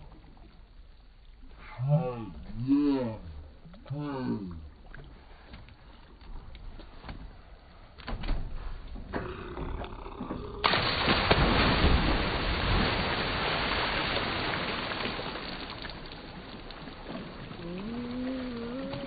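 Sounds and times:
water churning: 9.2 - 19.0
heavy splash into water: 10.6 - 19.0.

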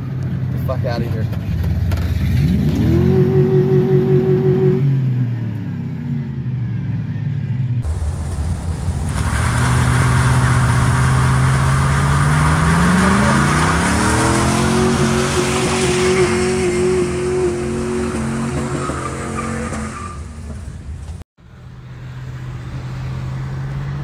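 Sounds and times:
pickup truck engine revving: 7.8 - 20.5.

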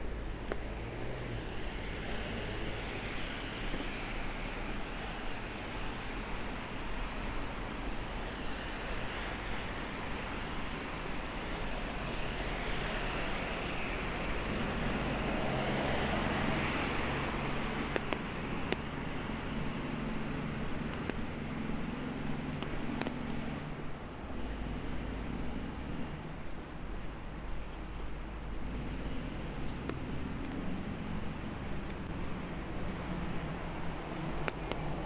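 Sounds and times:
low traffic rumble: 0.0 - 35.0
tyres hissing on wet road: 0.0 - 35.0.

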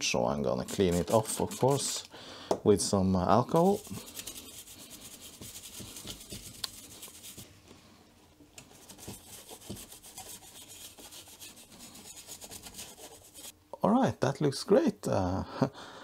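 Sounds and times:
toothbrush scrubbing circuit board: 0.6 - 2.1, 3.4 - 7.4, 8.8 - 13.5.

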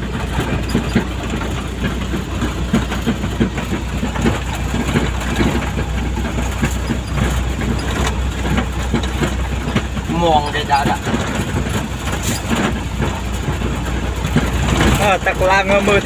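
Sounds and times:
rattles and knocks in cab: 0.0 - 16.0
vehicle engine hum: 0.0 - 16.0.

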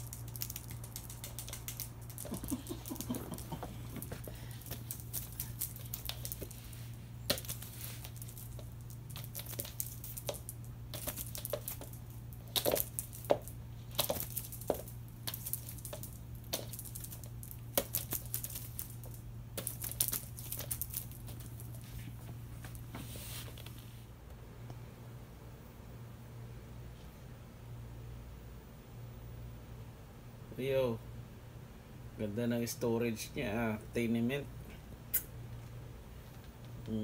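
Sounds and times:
cat toy taps and rustles: 0.0 - 6.5
steady low hum: 0.0 - 37.0.

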